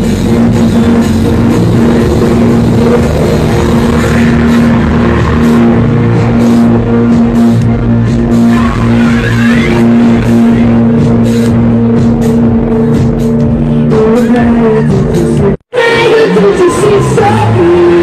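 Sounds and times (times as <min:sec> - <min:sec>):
higher line gliding upward: 0:00.0 - 0:13.1.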